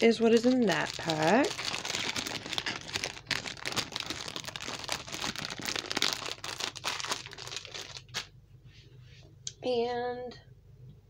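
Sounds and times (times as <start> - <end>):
cellophane crinkling: 0.0 - 8.3.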